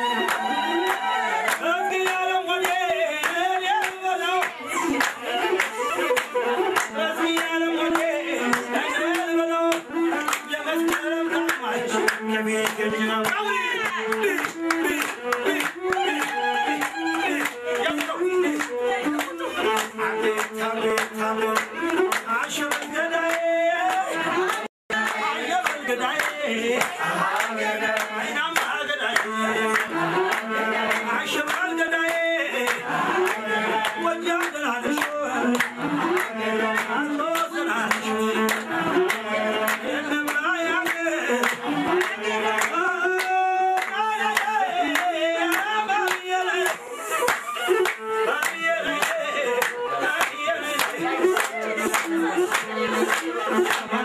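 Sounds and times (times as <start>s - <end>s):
hands clapping rhythmically: 0.0s - 54.0s
group singing to music: 23.3s - 40.3s, 40.9s - 47.5s, 48.3s - 54.0s.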